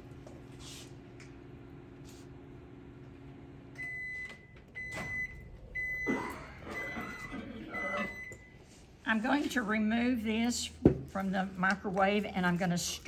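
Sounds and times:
microwave oven humming: 0.0s - 8.9s
microwave beeping: 2.8s - 8.6s.

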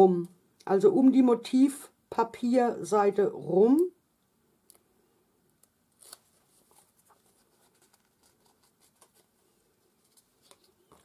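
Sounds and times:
paper and card rustling: 6.0s - 11.0s.

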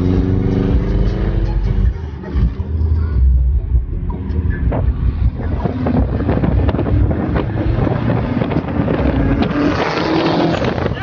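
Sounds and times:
car engine and exhaust: 0.0s - 11.0s
wind buffeting microphone: 4.6s - 11.0s.

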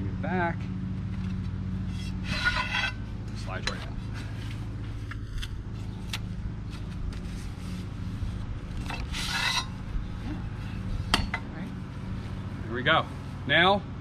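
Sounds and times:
steady low hum: 0.0s - 14.0s
scraping rasp: 1.9s - 3.0s, 8.8s - 9.8s.

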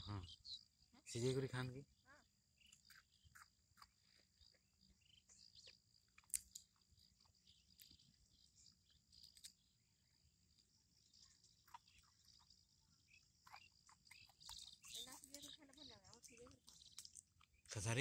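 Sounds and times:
high insect trill: 0.0s - 18.0s
chewing pea pods: 2.6s - 9.8s, 10.5s - 17.8s.

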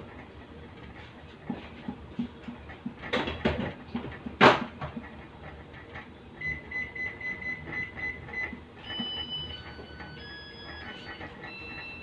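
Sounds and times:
rapid high alarm beeps: 6.4s - 12.0s.

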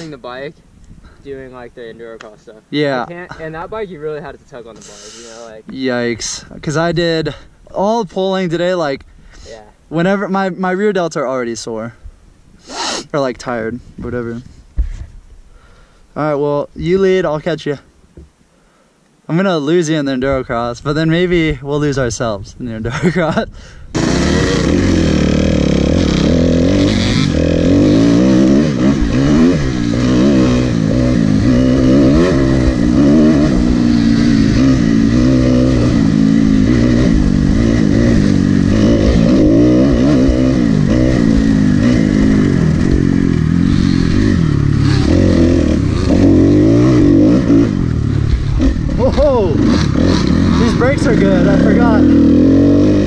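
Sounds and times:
dirt bike engine revving: 23.9s - 53.0s.

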